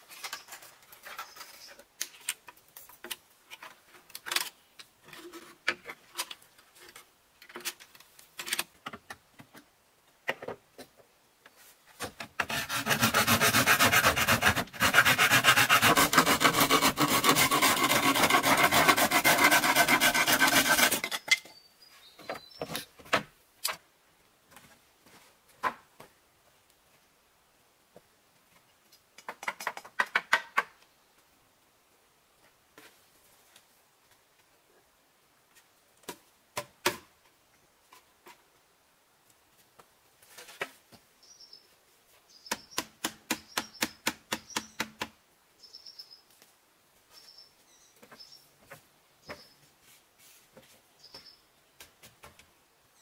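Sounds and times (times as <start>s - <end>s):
rasping scrape on bamboo: 12.4s - 21.2s.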